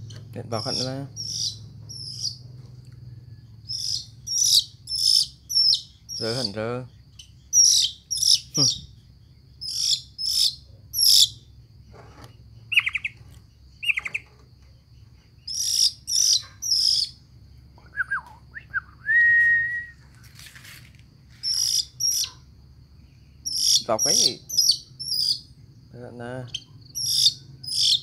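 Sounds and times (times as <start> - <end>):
magpie harsh rasping calls: 0.6 - 2.4, 3.7 - 6.6, 7.5 - 8.5, 9.6 - 11.4, 15.5 - 17.1, 21.4 - 22.4, 23.5 - 25.4, 27.0 - 28.0
bird whistled note: 17.9 - 20.0.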